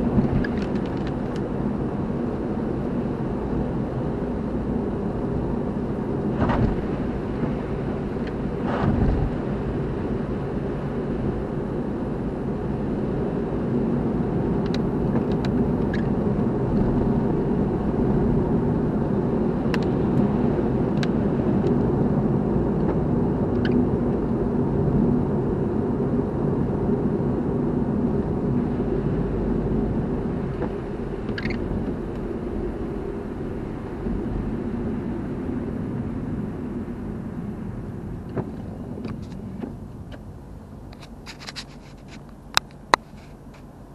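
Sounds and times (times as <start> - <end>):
car engine and road noise: 0.0 - 43.9.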